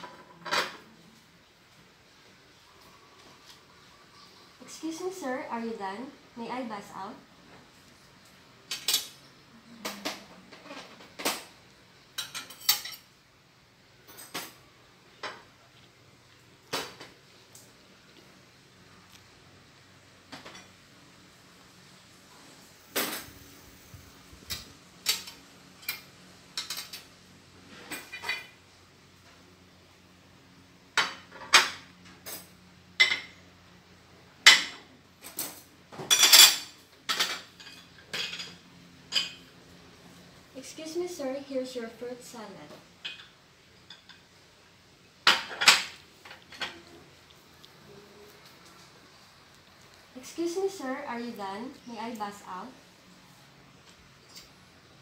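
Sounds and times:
plates and cutlery clinking: 12.1s - 13.1s, 34.5s - 39.6s, 45.2s - 47.0s.

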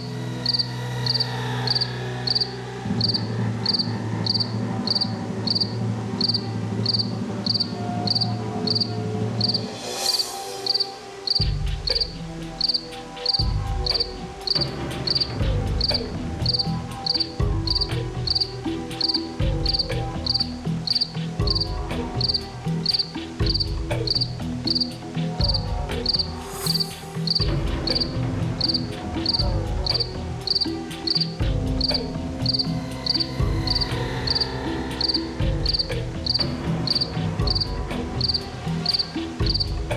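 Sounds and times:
cricket chirping: 0.0s - 39.7s
low rumbling drone: 25.4s - 39.9s.

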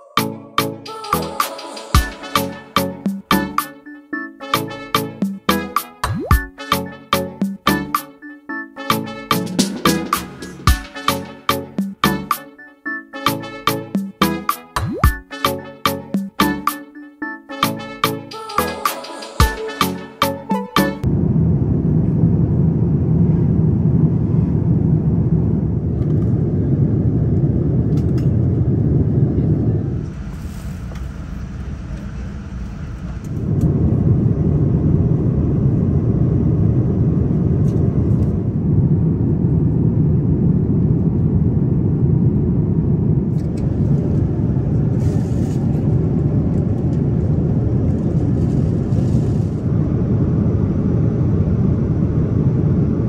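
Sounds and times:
airliner cabin rumble: 21.0s - 53.0s.

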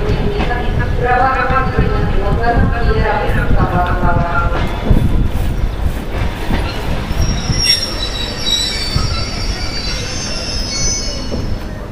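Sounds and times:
train wheels squealing on rails: 6.3s - 11.9s.

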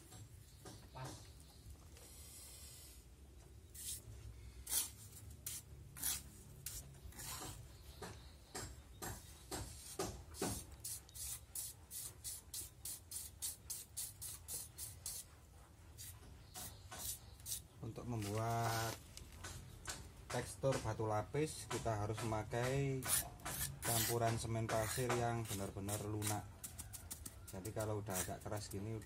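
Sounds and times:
scraping strokes on mortar: 3.7s - 19.6s, 20.4s - 29.0s.

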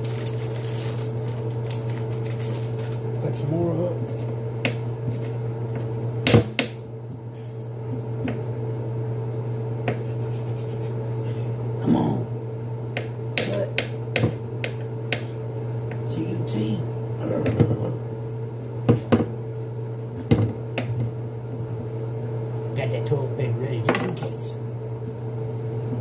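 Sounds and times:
steady low hum: 0.0s - 26.0s
knife chopping on cutting board: 9.8s - 10.8s, 13.0s - 16.0s.

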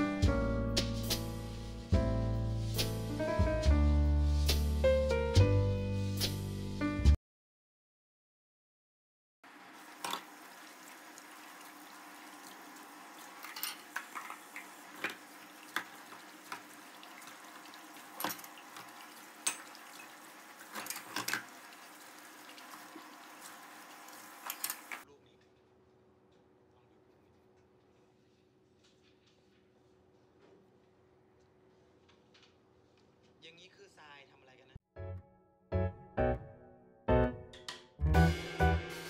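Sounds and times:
tap running into a sink: 10.0s - 10.4s
dishes clinking and knocking: 13.4s - 14.4s, 19.4s - 21.4s.

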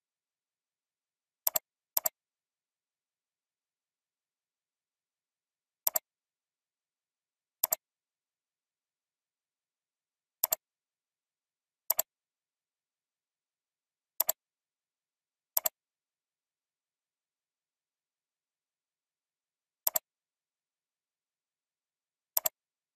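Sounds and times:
computer mouse clicks: 1.4s - 2.2s, 5.9s - 6.1s, 7.6s - 7.8s, 10.4s - 10.6s, 11.9s - 12.1s, 14.2s - 14.4s, 15.6s - 15.8s, 19.8s - 20.1s, 22.3s - 22.6s.

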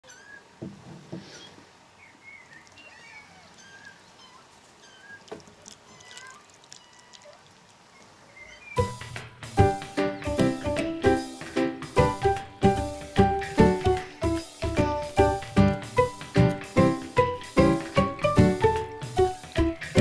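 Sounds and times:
kittens meowing: 2.6s - 8.9s.

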